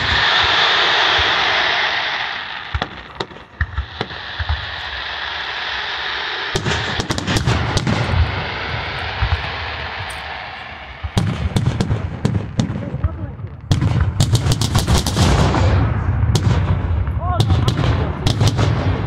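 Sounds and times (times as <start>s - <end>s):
deep fireworks rumble: 0.0s - 19.0s
fireworks booms and cracks: 0.0s - 19.0s.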